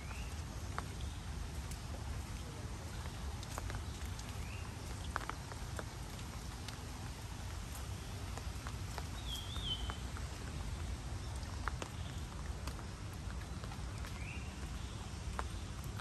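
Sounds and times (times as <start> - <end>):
rain pattering on leaves: 0.0 - 16.0
bird chirp: 9.2 - 10.0.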